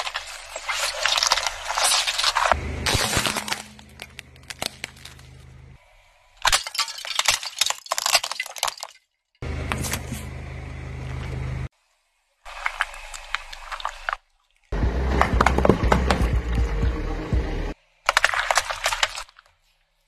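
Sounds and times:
plastic cracking under car tyre: 0.0 - 5.5
low car hum: 2.4 - 5.8, 9.4 - 11.7, 14.8 - 17.8.

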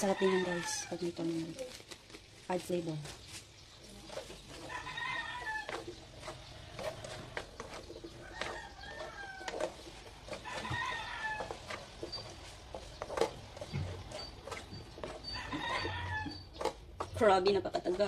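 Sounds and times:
rooster crowing: 0.0 - 1.0, 4.7 - 5.8, 8.2 - 9.7, 10.4 - 11.6, 15.3 - 16.4.

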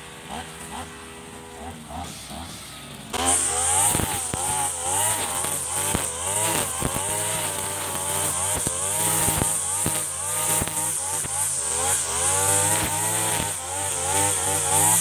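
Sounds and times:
brush cutter engine revving: 0.0 - 15.0.

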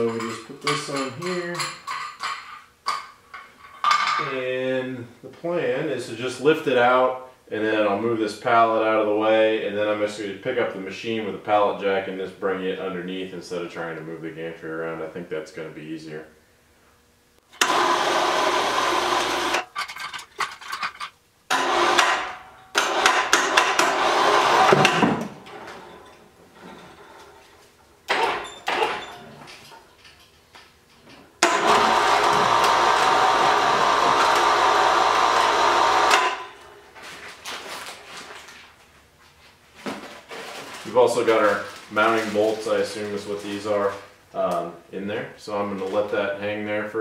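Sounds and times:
light metal clanks and knocks: 0.0 - 4.3
electric hoist motor whir: 17.5 - 19.7, 21.5 - 25.8, 31.4 - 36.7.

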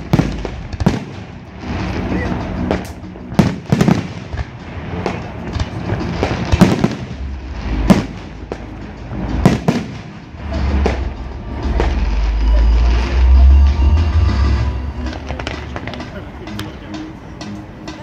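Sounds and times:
fireworks bangs: 0.0 - 2.8, 3.4 - 16.2
low rumble: 6.7 - 16.4.

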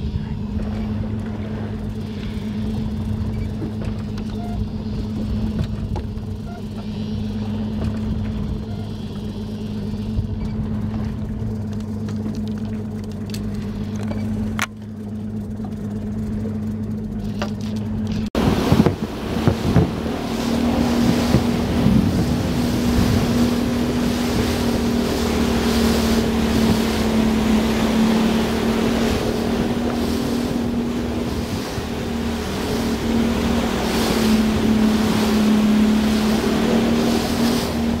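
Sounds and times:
motorboat engine humming: 0.0 - 38.0
water washing against hull: 0.0 - 38.0
wind buffeting microphone: 18.4 - 38.0.

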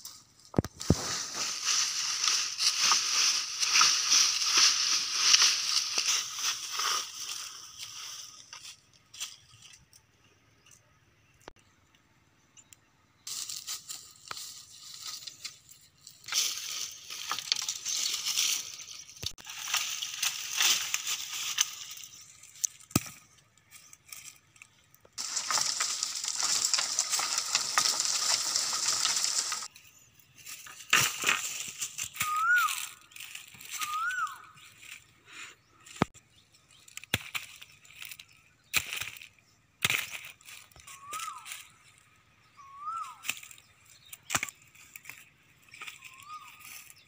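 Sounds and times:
dry leaves and twigs rustling: 0.0 - 10.8, 13.2 - 47.0
bird chirps: 9.2 - 13.6, 32.0 - 47.0.

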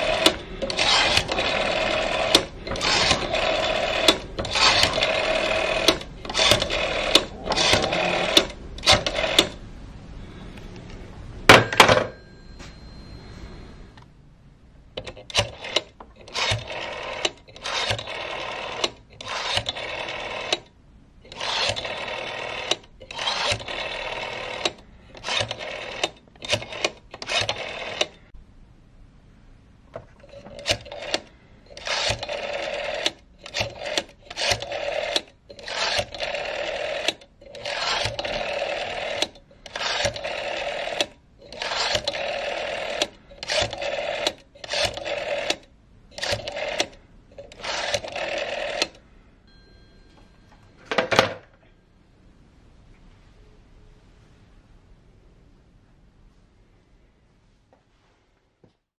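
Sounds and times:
rotary phone dial whirring and clicking: 0.0 - 9.6, 15.0 - 28.3, 30.0 - 49.0.

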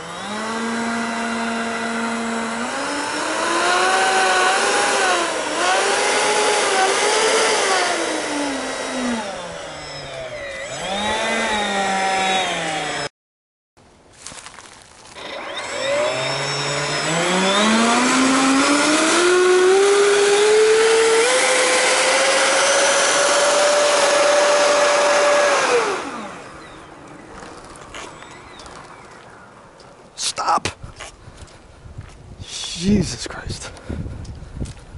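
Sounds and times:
electric ducted fans whining: 0.0 - 13.1, 15.0 - 33.2.

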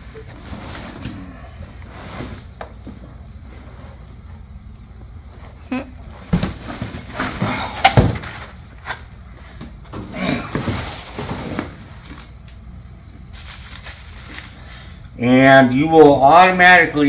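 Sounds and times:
cardboard and foam scraping: 10.3 - 12.3.

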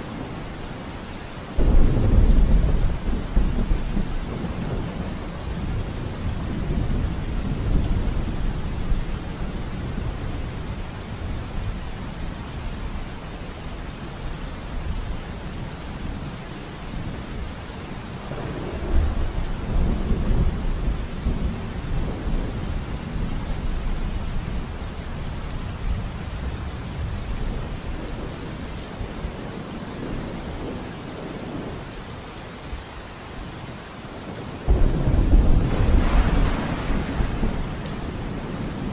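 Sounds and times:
steady rain: 0.0 - 38.9
low rolling thunder: 1.6 - 11.5, 18.3 - 24.8, 34.7 - 38.9.

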